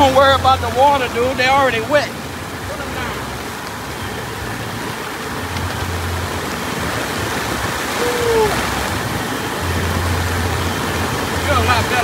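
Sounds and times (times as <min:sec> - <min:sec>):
boiler burner rushing hiss: 0:00.0 - 0:12.0
falling rain: 0:00.0 - 0:12.0.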